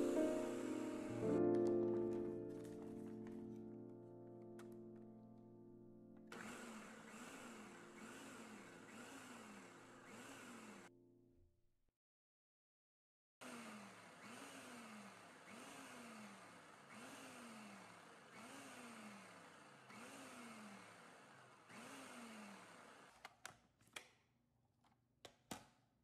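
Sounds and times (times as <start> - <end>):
food processor pulsing whirs: 0.0 - 1.6, 6.3 - 10.9, 13.4 - 23.5.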